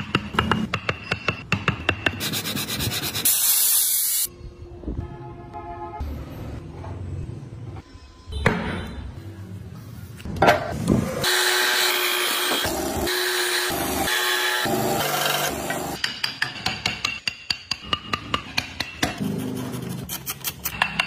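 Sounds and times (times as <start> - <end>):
bandsaw cutting wood: 11.2 - 16.0.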